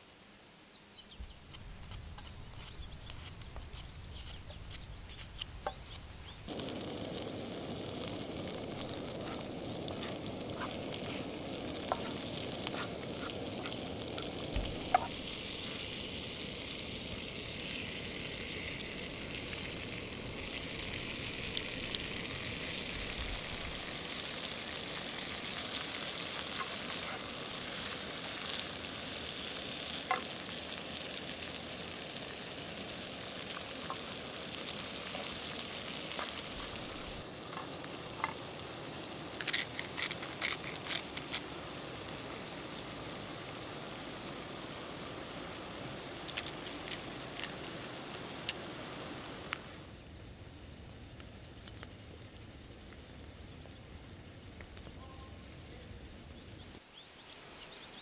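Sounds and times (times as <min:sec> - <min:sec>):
small clicks and crackles: 0:01.4 - 0:16.0, 0:39.2 - 0:41.5, 0:46.2 - 0:48.6
mushrooms sizzling in a pan: 0:01.7 - 0:49.8.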